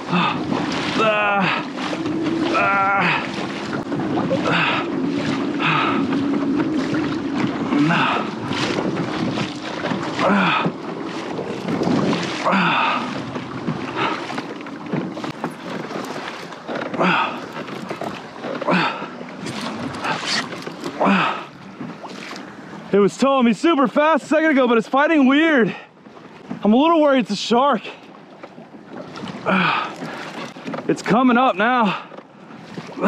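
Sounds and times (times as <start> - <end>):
wind buffeting microphone: 0.0 - 22.9
water splashing against kayak hull: 0.0 - 33.0.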